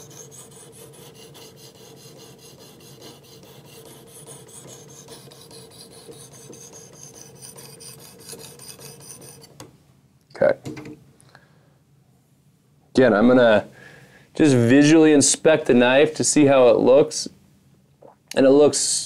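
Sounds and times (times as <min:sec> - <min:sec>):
sharpening plate scraping knife: 0:00.0 - 0:09.5.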